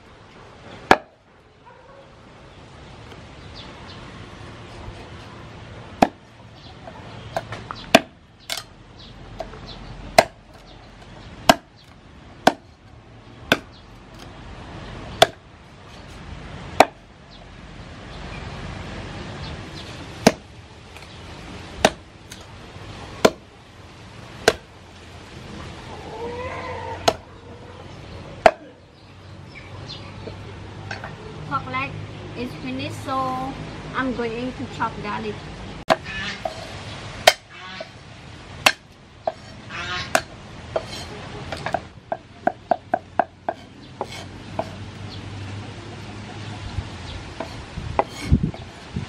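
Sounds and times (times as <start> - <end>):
cleaver chopping on wooden board: 0.9 - 1.1, 6.0 - 6.2, 7.4 - 8.6, 9.4 - 10.7, 11.5 - 11.7, 12.4 - 12.7, 13.5 - 14.3, 15.2 - 15.4, 16.8 - 17.0, 20.2 - 20.4, 21.8 - 22.4, 23.2 - 23.5, 24.4 - 24.7, 27.0 - 27.2, 37.2 - 37.4, 38.6 - 39.5, 40.1 - 44.8.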